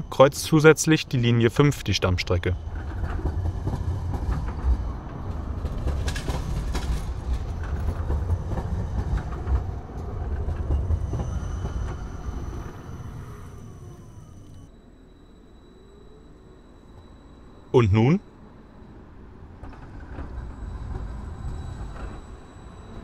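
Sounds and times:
tram rumbling past: 0:01.5 - 0:17.3
tram wheels clattering over track: 0:02.6 - 0:13.2.

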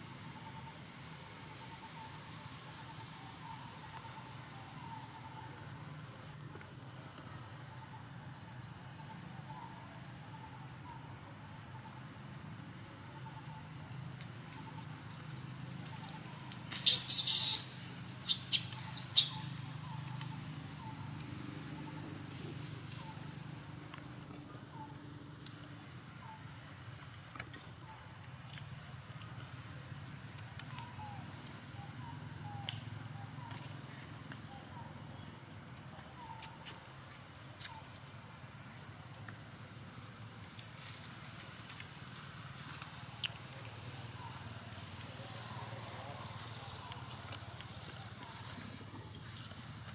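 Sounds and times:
high-pitched insect drone: 0:11.8 - 0:23.8.

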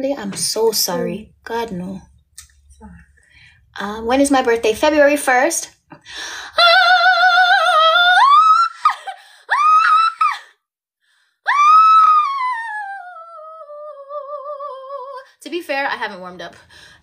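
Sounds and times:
woman singing opera: 0:06.4 - 0:10.5, 0:11.5 - 0:15.3.

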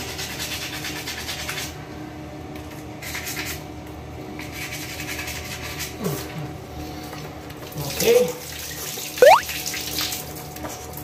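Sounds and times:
brief low falling sound: 0:09.2 - 0:09.4.

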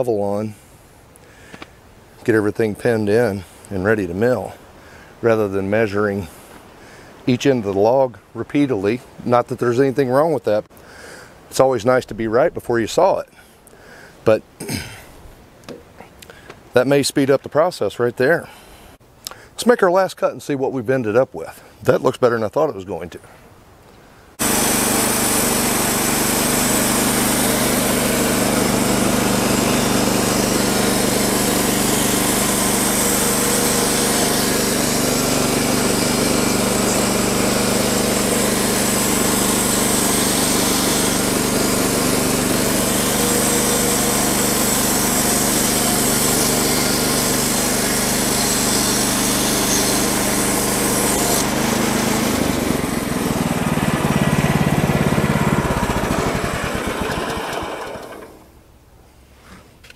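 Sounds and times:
band saw blade hissing through log: 0:24.4 - 0:53.4
gasoline engine droning: 0:24.4 - 0:58.5.

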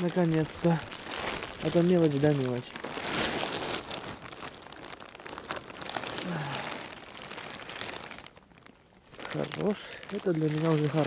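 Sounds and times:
snow crunching: 0:00.0 - 0:06.8
clothing rustling: 0:00.0 - 0:11.0.

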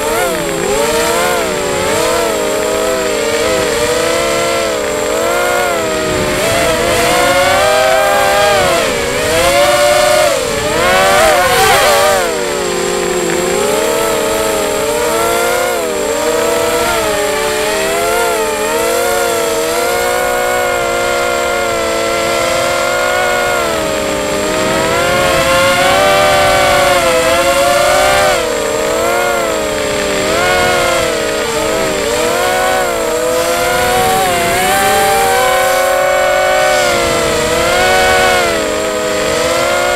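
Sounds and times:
quadcopter motors whining: 0:00.0 - 0:39.9.

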